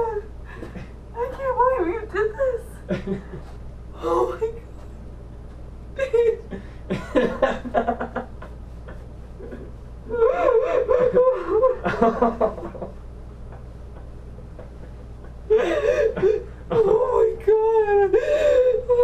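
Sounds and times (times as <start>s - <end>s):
woman crying and sobbing: 0.0s - 3.4s, 4.0s - 4.9s, 6.0s - 12.6s, 15.2s - 19.0s
woman laughing breaths: 8.4s - 11.8s, 14.7s - 16.7s, 18.2s - 18.8s.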